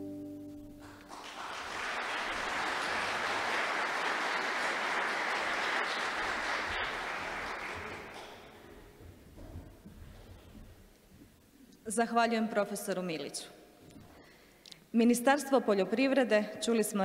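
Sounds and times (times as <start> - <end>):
audience applauding: 0.8 - 8.7.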